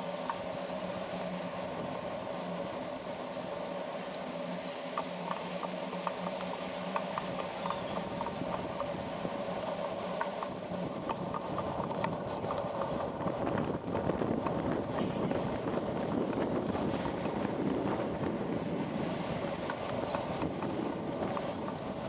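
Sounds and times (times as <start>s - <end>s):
bicycle rolling noise: 0.0s - 22.0s
wind on microphone: 5.2s - 22.0s.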